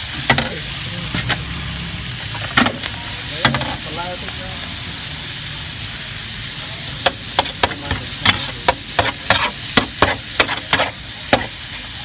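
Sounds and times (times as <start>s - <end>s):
food sizzling: 0.0s - 12.0s
metal spatula scraping a griddle: 0.3s - 3.8s, 7.1s - 11.5s.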